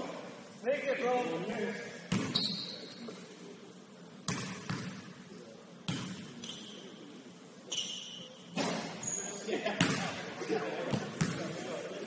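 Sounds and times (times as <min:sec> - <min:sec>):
sneaker squeak: 0:01.5 - 0:03.2, 0:05.9 - 0:07.0, 0:07.7 - 0:09.5
basketball bouncing on gym floor: 0:02.1 - 0:02.4, 0:04.3 - 0:05.0, 0:05.9 - 0:06.3.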